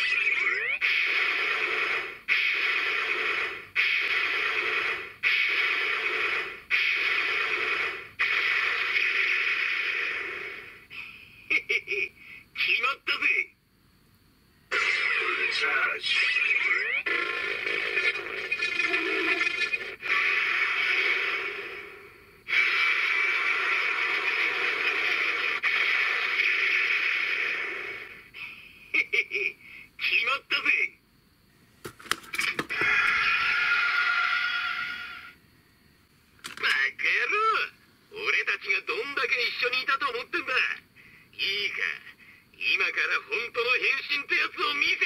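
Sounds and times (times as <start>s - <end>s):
electronic hissing surge: 0.0s - 11.0s, 17.1s - 28.4s, 32.8s - 35.4s.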